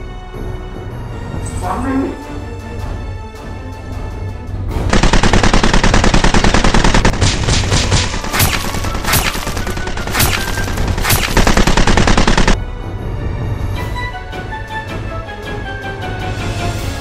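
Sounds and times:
automatic gunfire: 0:04.9 - 0:12.6.

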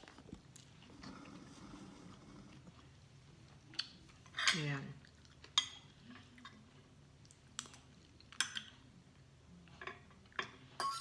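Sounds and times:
person chewing food: 0:00.0 - 0:04.3, 0:05.0 - 0:09.3.

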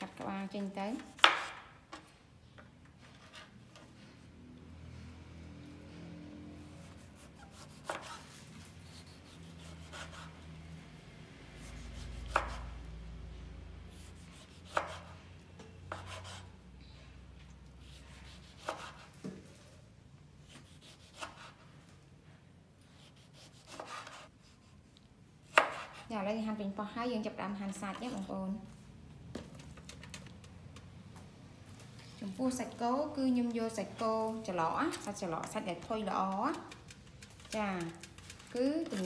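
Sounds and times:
knife slicing tomato: 0:06.7 - 0:10.4, 0:11.6 - 0:12.8, 0:13.9 - 0:15.2, 0:15.9 - 0:16.6, 0:17.8 - 0:19.4, 0:20.4 - 0:21.7, 0:22.8 - 0:26.3.

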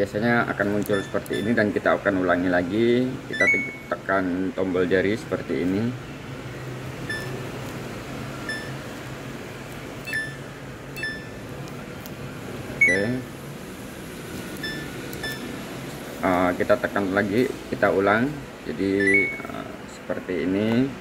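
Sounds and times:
steady low hum: 0:00.0 - 0:21.0
short high beeps: 0:03.3 - 0:04.0, 0:07.1 - 0:07.4, 0:08.5 - 0:08.8, 0:10.1 - 0:11.4, 0:12.8 - 0:13.1, 0:14.6 - 0:15.5, 0:19.0 - 0:19.6.

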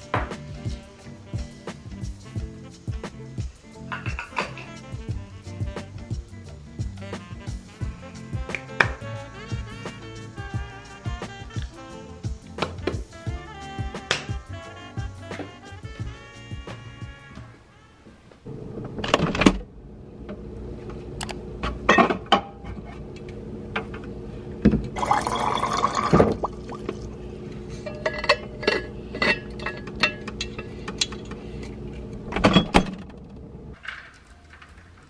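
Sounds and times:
steady hum: 0:18.5 - 0:33.8
water pouring into bottle: 0:25.0 - 0:27.2.

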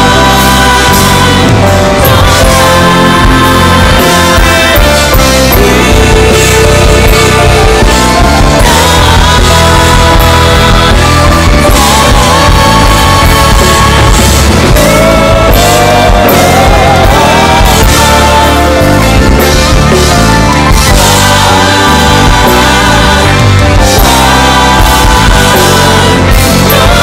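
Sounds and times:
gospel band playing: 0:00.0 - 0:27.0
steady bass: 0:00.0 - 0:27.0.

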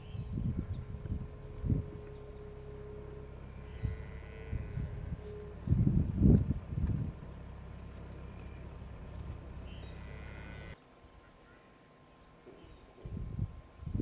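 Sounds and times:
steady low rumble: 0:00.0 - 0:10.8.

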